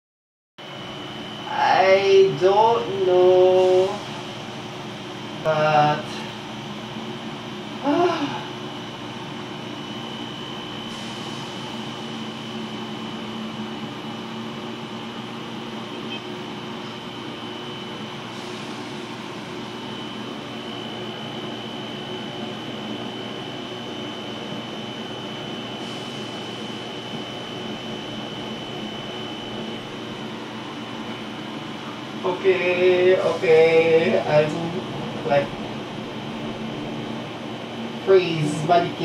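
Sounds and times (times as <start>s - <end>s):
thin high whine: 0.6s - 39.0s
ventilation fan humming: 0.6s - 39.0s.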